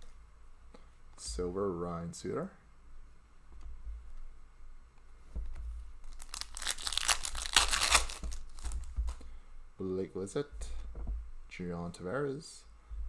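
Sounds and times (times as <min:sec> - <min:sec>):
foil wrapper tearing and crinkling: 0:06.0 - 0:08.8.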